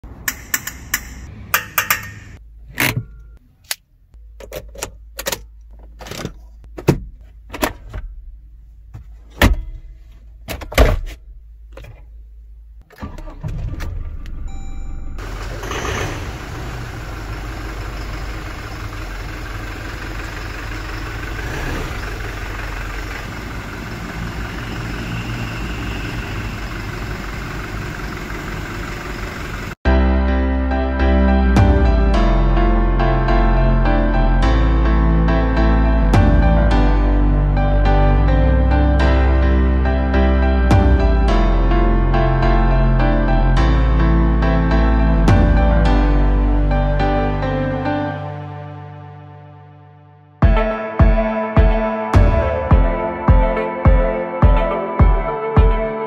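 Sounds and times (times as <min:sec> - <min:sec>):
diesel engine starting and idling: 0:12.8 - 0:30.2.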